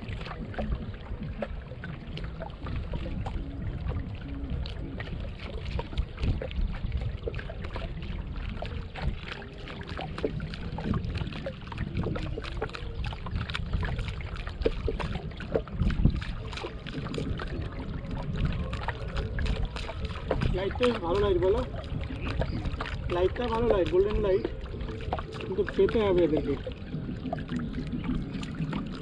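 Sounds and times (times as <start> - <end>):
steady low rumble: 0.0 - 29.0
water lapping at boat hull: 0.0 - 29.0
oar knocks and creaks: 8.6 - 29.0.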